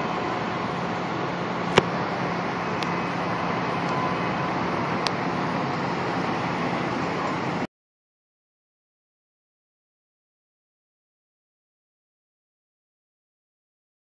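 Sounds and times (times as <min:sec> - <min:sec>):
city street noise: 0:00.0 - 0:07.7
diesel engine idling: 0:00.0 - 0:07.7.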